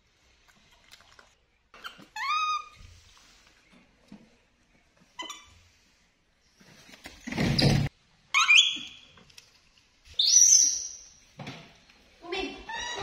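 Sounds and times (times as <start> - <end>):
baby monkey squeaking calls: 8.4 - 9.0.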